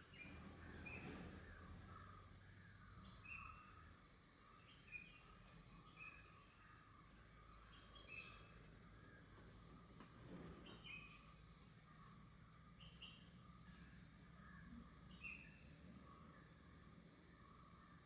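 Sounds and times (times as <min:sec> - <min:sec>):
bird chirps: 0:00.0 - 0:03.8, 0:07.5 - 0:08.6, 0:10.6 - 0:11.3
insect drone: 0:00.0 - 0:18.0.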